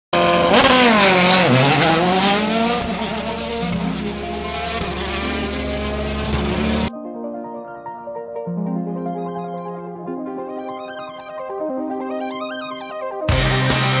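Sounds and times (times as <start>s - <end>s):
rally car engine revving: 0.2s - 6.9s.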